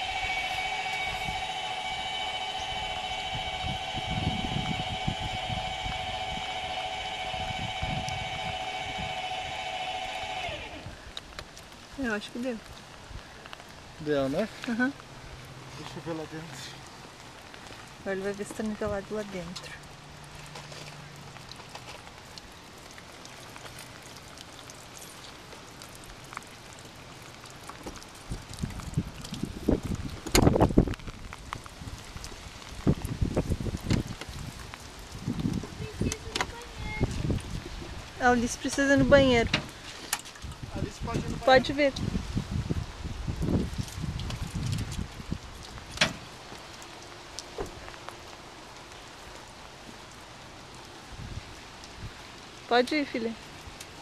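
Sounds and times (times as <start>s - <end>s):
raindrops ticking: 0.0s - 42.7s, 43.3s - 54.0s
steady rain: 0.0s - 54.0s.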